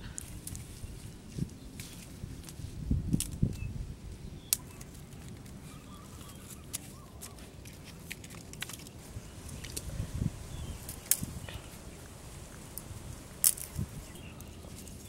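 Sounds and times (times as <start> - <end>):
faint bird chirps: 5.6 - 7.4
dry sticks clicking and knocking: 6.2 - 9.9, 10.8 - 11.7, 12.7 - 15.0.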